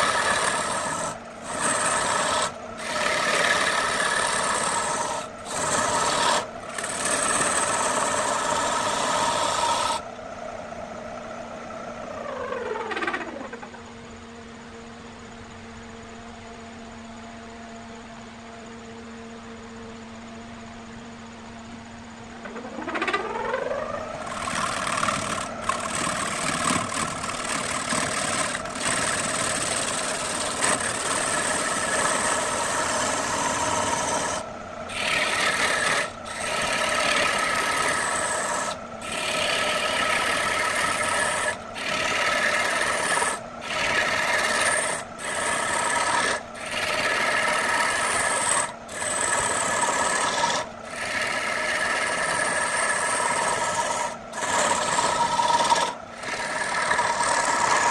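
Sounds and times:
gouge scraping spinning wood: 0.0s - 10.1s, 12.1s - 13.8s, 22.4s - 57.9s
wood lathe humming: 0.0s - 10.2s, 22.4s - 57.9s.

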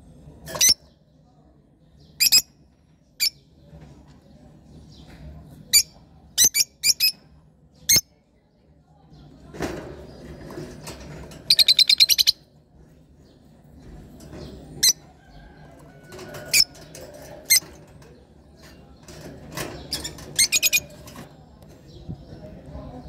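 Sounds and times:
lovebirds chirping: 11.4s - 12.5s.

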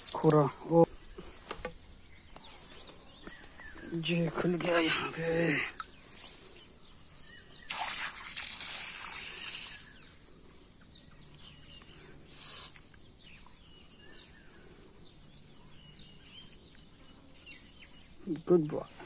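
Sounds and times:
hose water splashing in puddle: 0.0s - 0.8s, 7.6s - 10.3s, 12.3s - 13.0s
small birds chirping: 0.0s - 19.0s.

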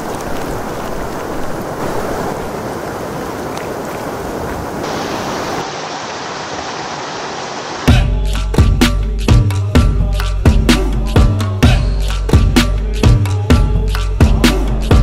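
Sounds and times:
stream splashing over rocks: 0.0s - 7.9s.

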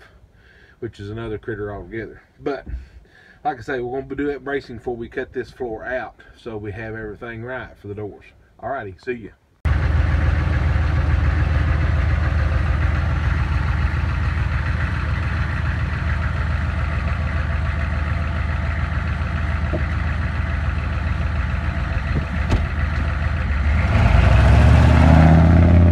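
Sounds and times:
truck engine idling and revving: 9.7s - 25.9s.

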